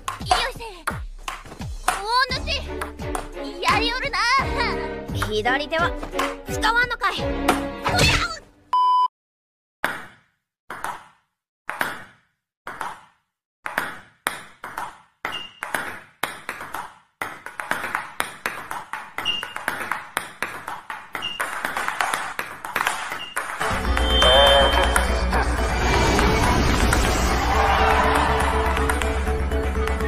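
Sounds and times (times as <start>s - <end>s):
table tennis balls clicking: 10.7s - 23.6s.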